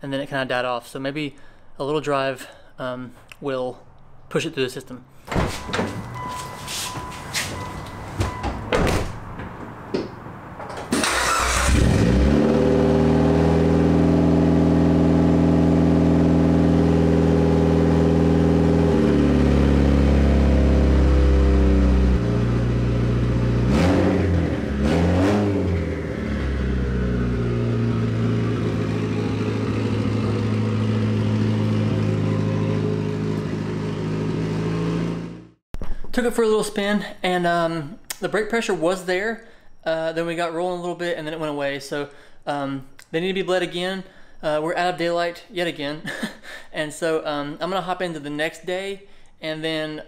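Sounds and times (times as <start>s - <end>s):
car door shutting: 5.3s - 9.7s
car engine starting and idling: 5.3s - 35.5s
engine revving: 10.9s - 35.6s.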